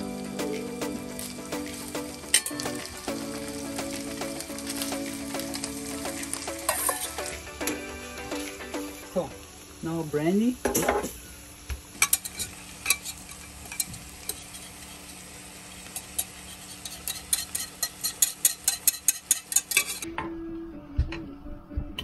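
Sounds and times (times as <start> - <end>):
food sizzling in frying pan: 0.0 - 20.0
pops and clicks of pan: 3.8 - 7.8.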